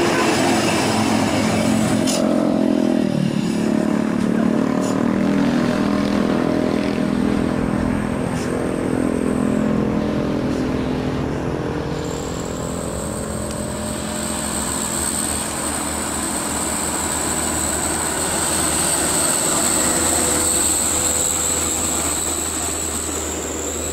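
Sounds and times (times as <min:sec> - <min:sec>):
high whine: 0:00.0 - 0:23.9
vehicles passing: 0:00.0 - 0:23.9
heavy truck engine under load: 0:06.7 - 0:23.9.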